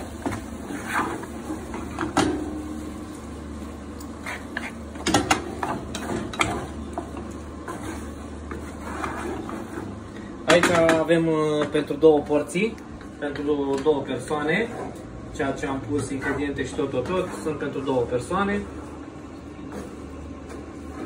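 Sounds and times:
steady low hum: 0.0s - 21.0s
spatula scraping frying pan: 7.6s - 10.0s.

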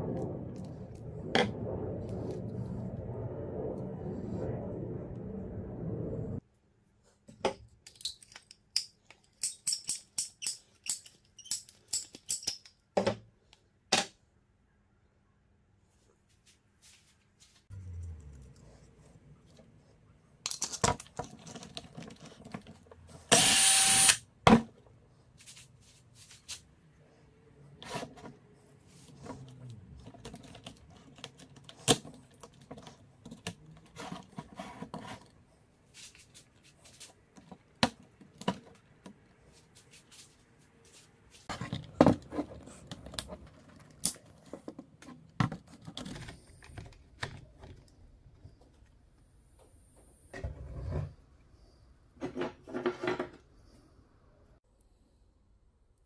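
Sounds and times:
small parts clicking and tapping: 7.8s - 12.8s.

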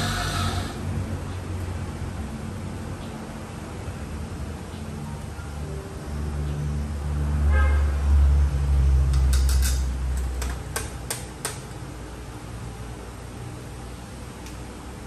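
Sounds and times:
portafilter clicks and taps: 9.1s - 11.8s.

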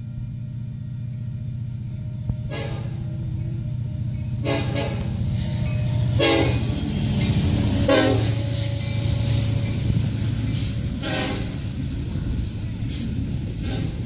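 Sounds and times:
locomotive engine rumble: 0.0s - 14.0s
locomotive air horn blasts: 2.3s - 3.2s, 4.4s - 5.3s, 6.1s - 6.8s, 7.7s - 9.6s, 10.9s - 11.7s.

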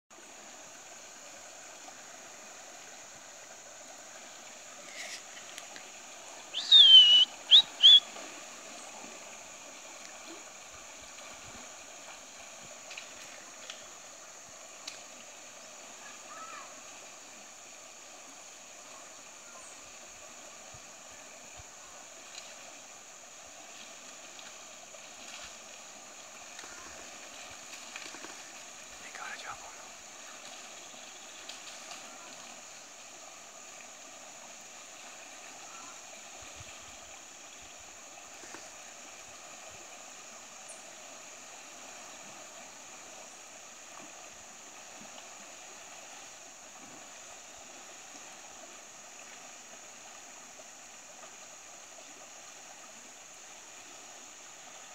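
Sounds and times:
river hiss: 0.1s - 54.9s
shrill whistled call: 6.5s - 8.2s.

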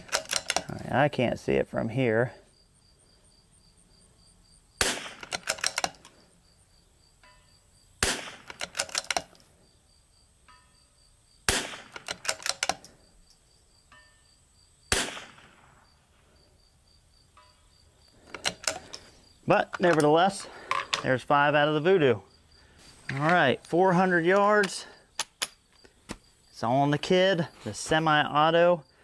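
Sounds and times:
rifle bolt clicking: 0.0s - 0.7s, 4.8s - 6.1s, 8.0s - 9.4s, 11.5s - 12.9s, 18.3s - 19.1s
rifle shots: 4.8s - 6.0s, 8.0s - 9.2s, 11.5s - 12.8s, 14.9s - 15.8s.

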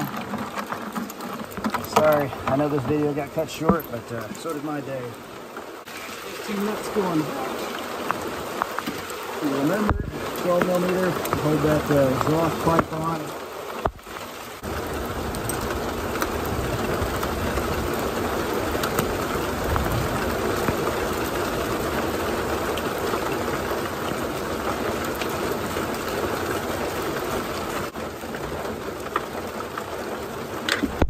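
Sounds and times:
heavy rain falling: 0.0s - 31.0s.

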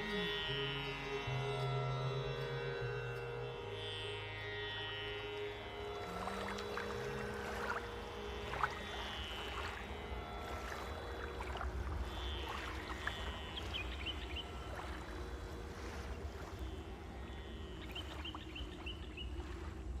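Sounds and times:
water lapping against a boat: 5.0s - 20.0s
small water splashes: 5.4s - 20.0s.

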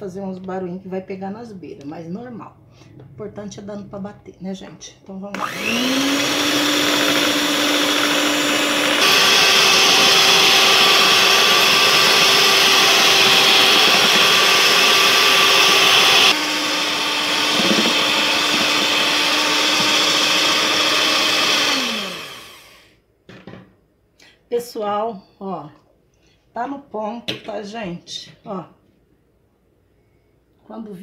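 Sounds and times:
electric mixer running: 5.4s - 22.9s.

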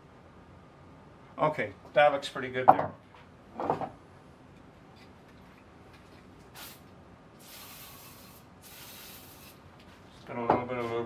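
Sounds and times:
aerosol spray hissing: 6.5s - 9.6s.

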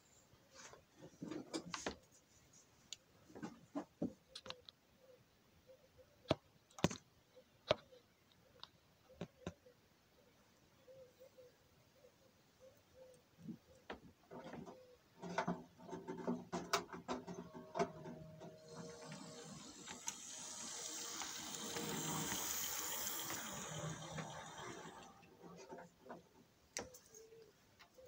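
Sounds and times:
model train clicks and clacks: 16.8s - 25.3s
low motor hum: 17.3s - 25.6s
wheels rumbling on rail: 17.9s - 25.3s.

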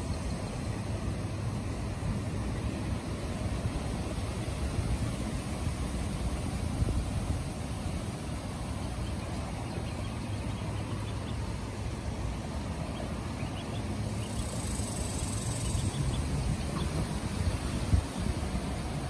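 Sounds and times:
ducklings peeping: 8.6s - 18.5s.

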